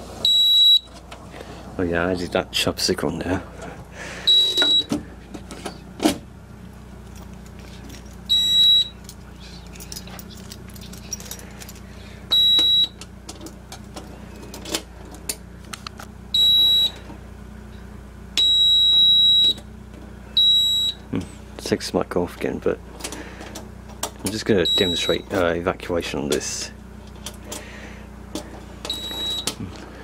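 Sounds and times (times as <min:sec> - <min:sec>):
alarm panel buzzer beeping: 0:00.2 - 0:00.9, 0:04.2 - 0:05.0, 0:08.3 - 0:09.0, 0:12.3 - 0:13.0, 0:16.3 - 0:17.0, 0:18.4 - 0:19.7, 0:20.4 - 0:21.1, 0:24.6 - 0:25.3, 0:28.9 - 0:29.6.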